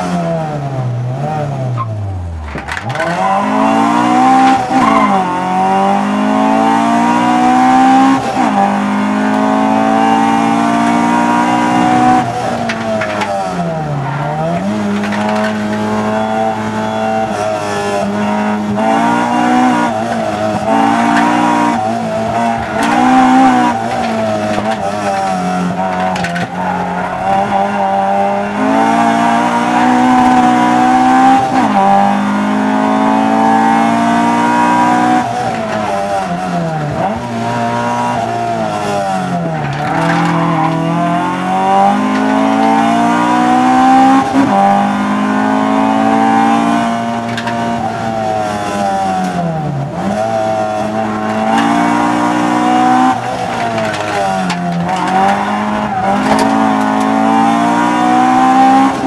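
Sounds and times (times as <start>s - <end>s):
car engine revving hard: 2.9s - 59.0s.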